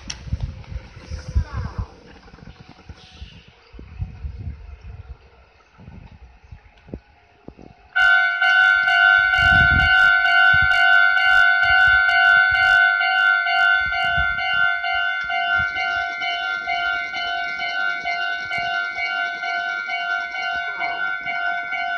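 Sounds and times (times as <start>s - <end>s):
level-crossing electronic bell: 8.0s - 21.9s.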